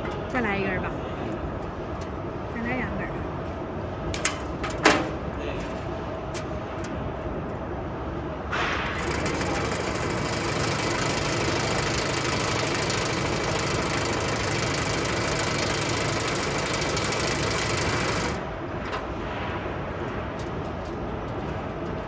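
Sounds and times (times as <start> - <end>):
machine hum: 0.0 - 22.0
wire winding machine clatter: 8.7 - 18.9.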